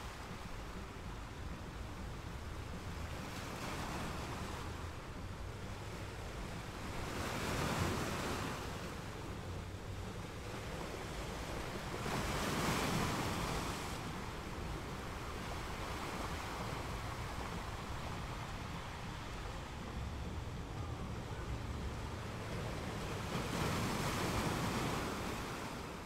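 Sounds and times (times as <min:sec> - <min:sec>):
sea waves washing in: 0:00.0 - 0:26.0
steady low rumble: 0:14.1 - 0:23.4.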